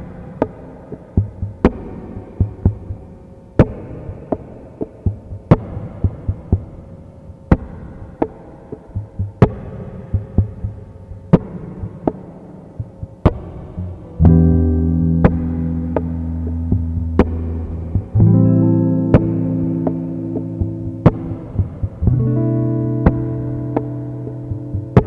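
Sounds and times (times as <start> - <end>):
low pulsing hum: 13.8 - 25.0.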